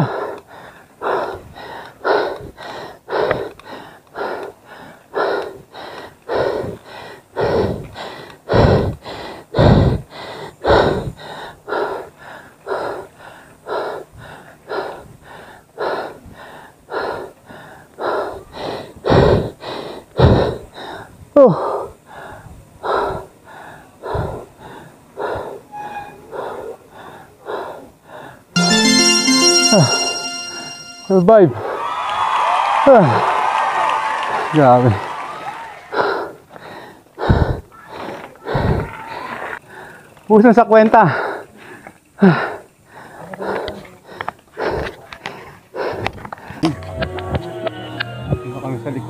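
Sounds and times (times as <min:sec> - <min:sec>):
cyclist panting: 0:00.0 - 0:28.5, 0:35.9 - 0:40.3, 0:40.9 - 0:46.6.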